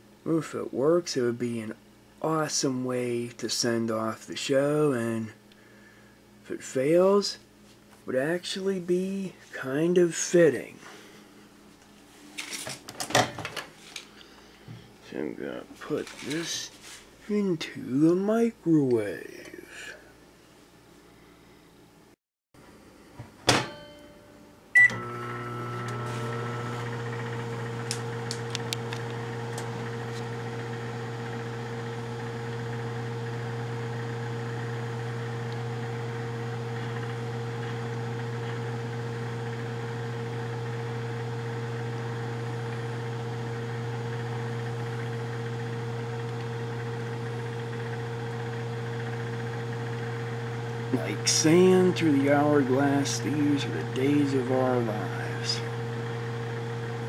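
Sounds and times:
microwave humming: 22.6 - 57.0
microwave door clunk: 23.4 - 24.0
short beep: 24.8 - 25.0.

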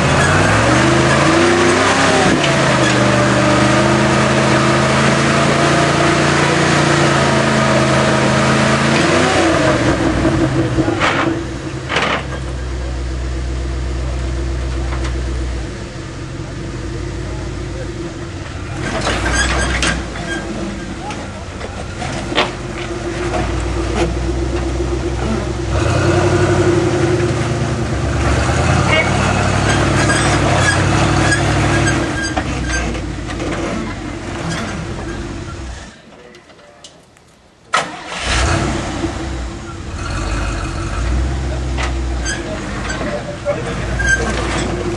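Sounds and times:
engine idling: 0.0 - 36.2, 37.8 - 44.9
sharp clicks and creaks: 18.4 - 25.4, 41.8 - 44.9.

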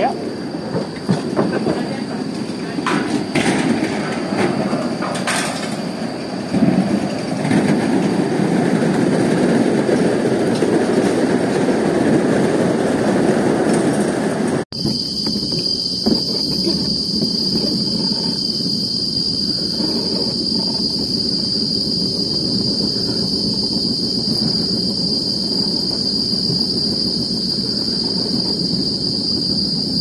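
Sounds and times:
high-pitched insect drone: 14.8 - 30.0.

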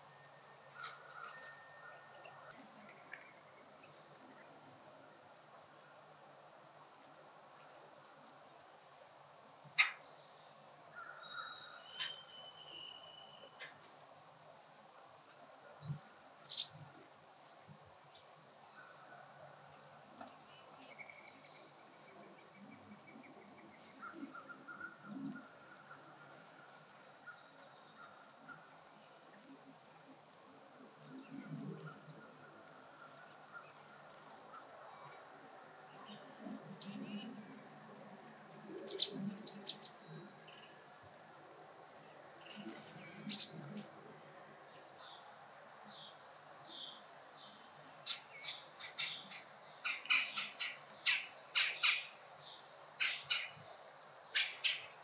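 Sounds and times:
small birds chirping: 9.8 - 14.4, 15.8 - 16.9, 30.8 - 40.8, 41.5 - 44.0, 44.6 - 55.0.

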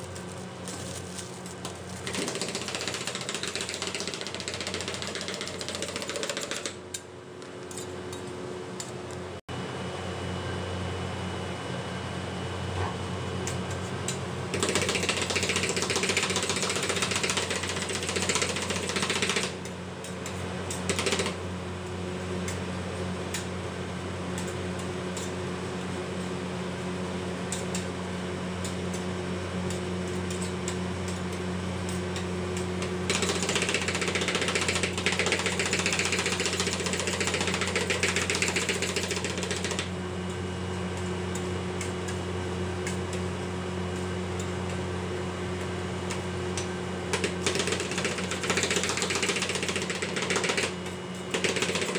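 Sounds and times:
steady low hum: 0.0 - 3.2.

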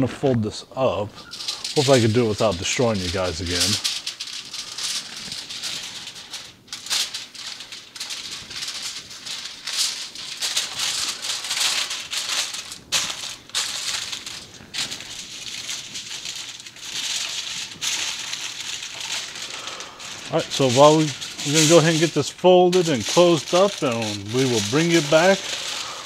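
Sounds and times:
aluminium foil crinkling: 1.1 - 26.0.

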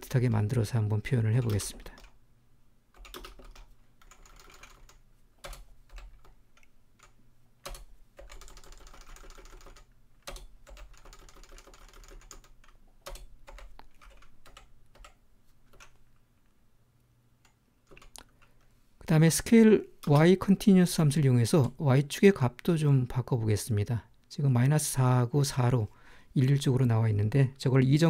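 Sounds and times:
computer keyboard typing: 1.3 - 2.2, 2.9 - 16.0, 17.4 - 18.6.

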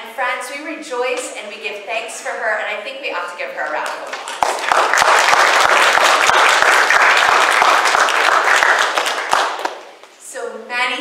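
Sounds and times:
congregation applauding: 3.8 - 9.9.

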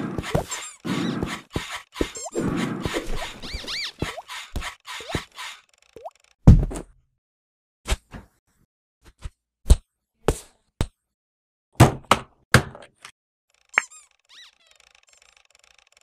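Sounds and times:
cartoon knocks and whacks: 6.4 - 7.0
brief squeak: 13.7 - 15.5.

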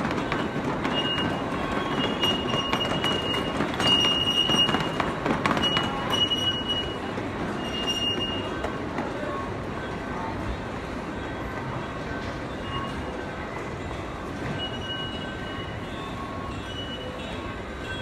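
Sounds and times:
miniature train rumbling on track: 0.0 - 18.0
high-pitched wheel squeals: 0.2 - 8.7, 12.4 - 13.4, 14.3 - 18.0.

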